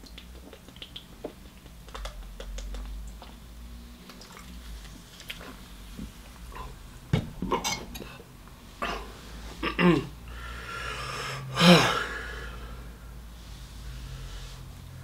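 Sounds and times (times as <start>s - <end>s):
man burping: 8.8s - 10.2s, 11.5s - 12.1s.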